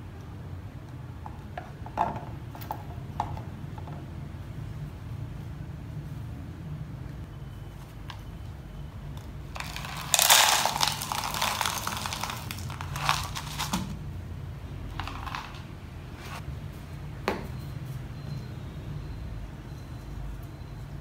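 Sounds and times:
pebbles poured into plastic pot: 9.6s - 14.0s, 14.9s - 15.7s.

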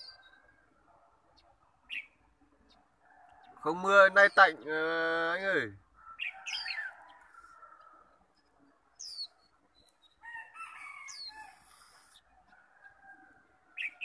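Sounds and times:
bird chirps: 0.0s - 0.6s, 1.2s - 5.2s, 6.0s - 12.6s, 13.7s - 14.0s
roosters crowing: 5.1s - 8.2s, 10.2s - 14.0s.

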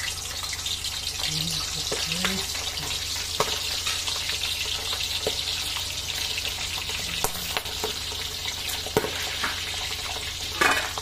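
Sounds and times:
meat sizzling in hot oil: 0.0s - 11.0s.

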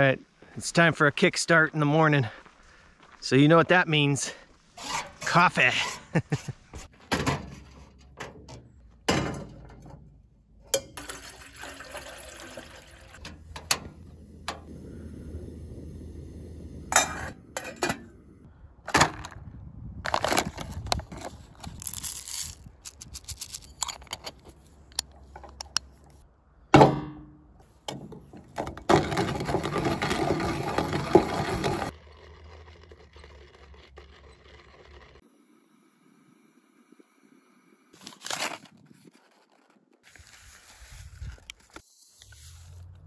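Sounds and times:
coffee beans being ground: 21.6s - 24.3s, 28.9s - 35.2s.

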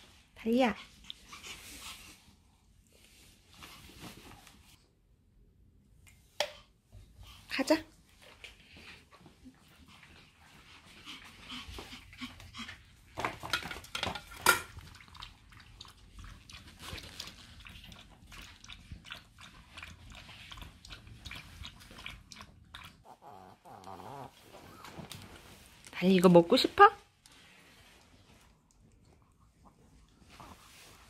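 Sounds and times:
dog lapping water: 14.2s - 24.2s.

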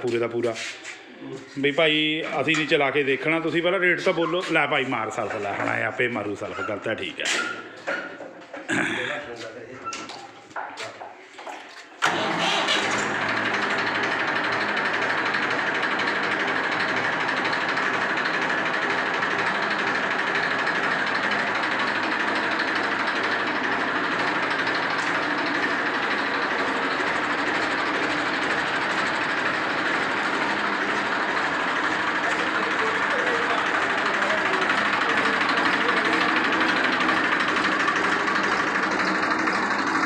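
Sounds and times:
diesel tractor engine idling: 0.0s - 9.6s, 12.0s - 40.0s
electric starter cranking: 12.0s - 40.0s.

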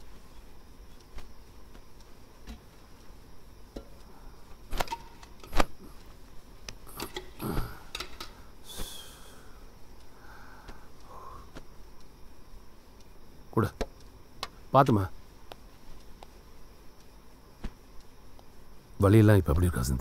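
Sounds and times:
cloth rustling: 0.0s - 3.2s
handling clicks and knocks: 6.7s - 8.4s
short hiss: 8.6s - 9.5s.

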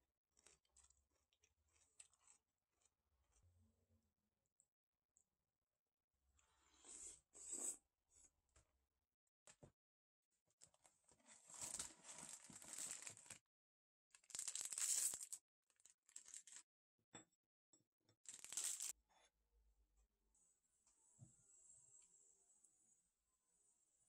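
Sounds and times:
plastic wrappers tearing and crinkling: 11.4s - 13.4s, 14.2s - 16.6s, 18.2s - 19.0s.

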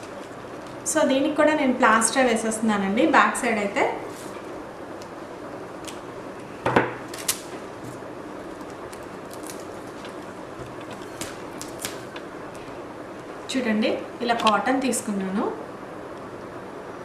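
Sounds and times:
adhesive tape clicks and rustles: 7.1s - 12.6s.

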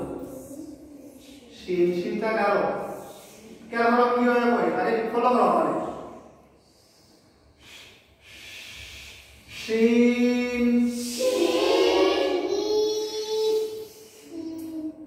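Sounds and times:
child chanting: 11.1s - 15.0s.

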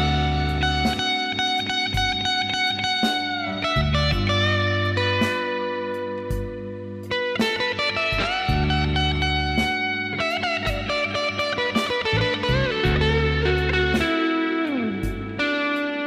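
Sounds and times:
bass line: 0.0s - 1.0s, 3.6s - 5.3s, 8.2s - 9.6s, 12.1s - 14.2s
electric guitar lead with bends: 0.0s - 16.0s.

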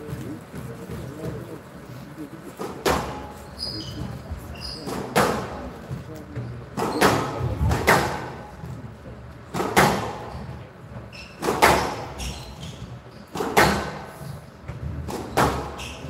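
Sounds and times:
squash ball hits: 4.9s - 6.0s, 6.8s - 8.5s, 9.5s - 10.4s, 11.4s - 12.2s, 13.3s - 14.1s, 15.0s - 16.0s.

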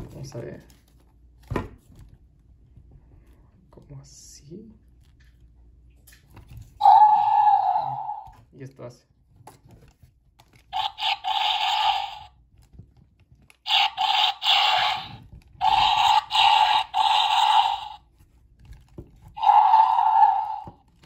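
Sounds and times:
toy speaker dinosaur roars: 6.8s - 8.4s, 10.8s - 12.3s, 13.7s - 18.0s, 19.4s - 20.8s.

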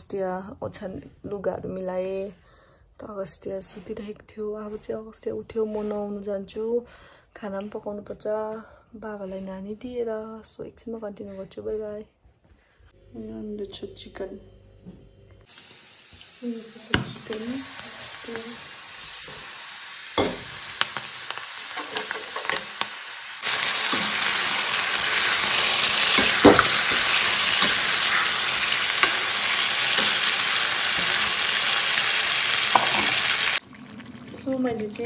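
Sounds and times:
chicken frying hiss: 15.4s - 35.0s
onions sizzling in oil: 15.4s - 35.0s
metal ladle scraping a pan: 23.4s - 33.6s.

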